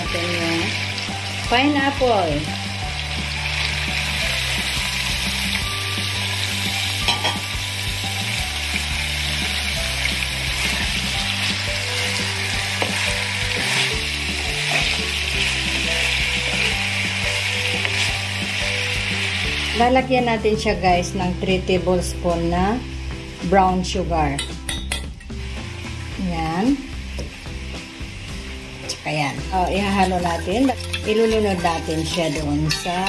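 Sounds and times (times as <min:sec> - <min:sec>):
food sizzling in a frying pan: 0:00.0 - 0:33.0
wooden spatula stirring: 0:29.9 - 0:33.0.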